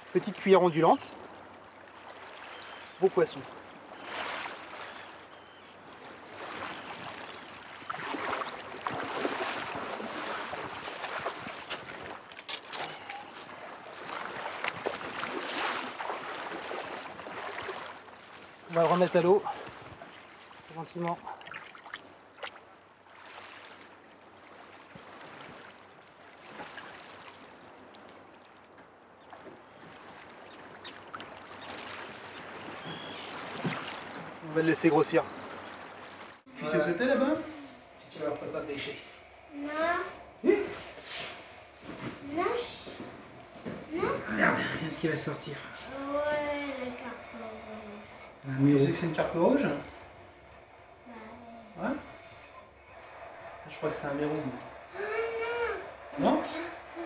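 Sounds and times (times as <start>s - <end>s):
shallow water lapping and swishing: 0.0s - 57.0s
sea washing on pebbles: 6.2s - 12.6s, 13.4s - 28.5s.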